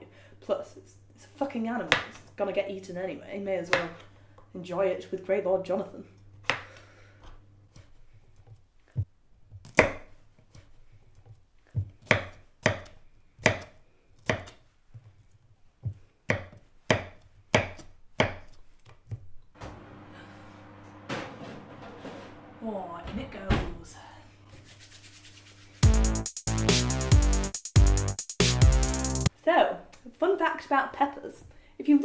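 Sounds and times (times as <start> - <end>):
knife chopping on board: 9.6 - 10.1, 11.8 - 14.6, 15.9 - 18.6.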